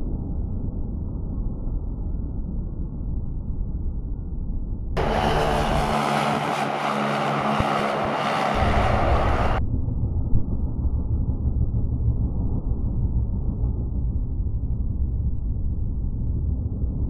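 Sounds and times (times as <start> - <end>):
slowed low rumble: 0.0 - 17.0
car speeding past and braking: 5.0 - 9.6.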